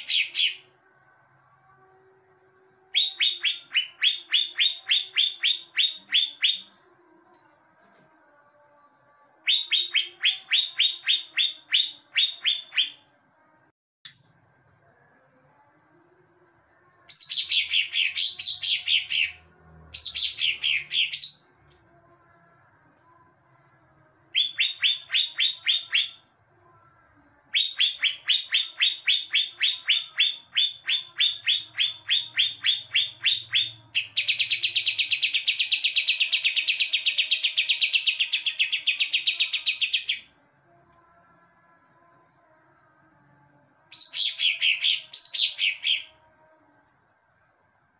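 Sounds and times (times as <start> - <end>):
bird chirping: 0.0 - 0.6
rapid bird trill: 0.0 - 0.7, 2.9 - 6.7, 24.3 - 26.2, 27.5 - 40.2.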